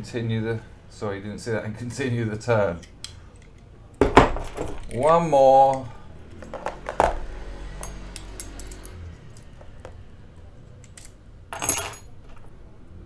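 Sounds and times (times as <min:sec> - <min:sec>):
metallic clicks of lock tools: 0:07.8 - 0:09.6, 0:10.7 - 0:12.1.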